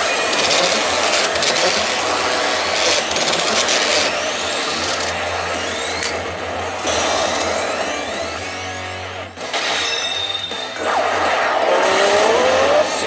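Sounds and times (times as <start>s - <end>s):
pachinko machine sound effect: 9.4s - 13.0s
rising sweeps: 10.6s - 13.0s.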